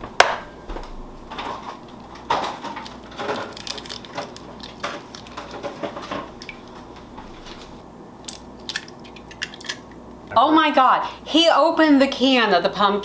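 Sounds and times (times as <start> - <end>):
eggshell clicking and crackling: 2.2 - 6.8, 8.2 - 10.0.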